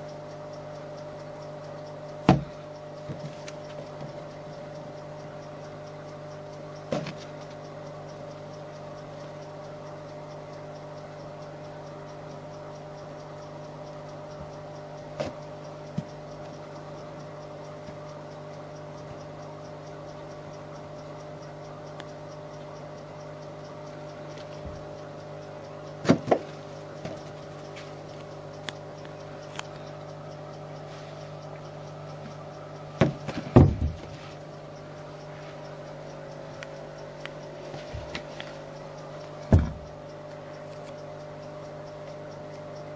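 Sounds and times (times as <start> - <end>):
steady electrical hum: 0.0 - 42.9.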